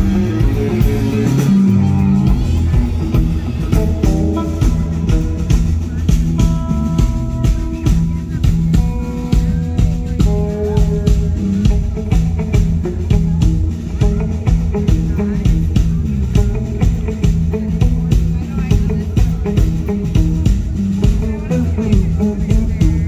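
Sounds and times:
drum kit steady beat: 0:00.0 - 0:23.0.

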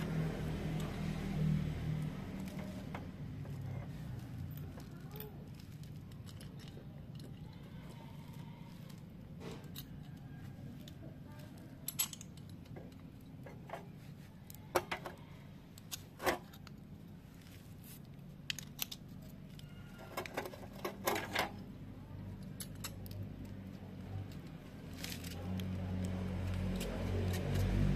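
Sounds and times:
low steady hum: 0:00.0 - 0:27.9
metal parts clinking: 0:02.4 - 0:13.9, 0:18.3 - 0:21.7, 0:22.3 - 0:25.4.

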